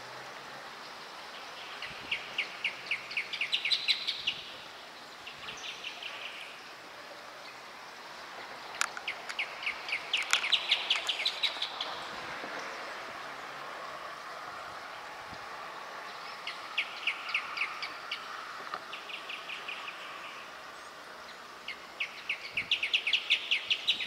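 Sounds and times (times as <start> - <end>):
steady background hiss: 0.0 - 24.0
birds rapid chirping duet: 8.6 - 12.1.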